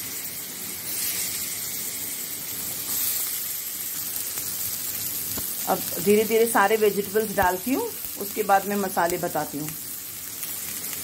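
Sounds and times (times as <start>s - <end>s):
onion sizzling in a pan: 0.0s - 11.0s.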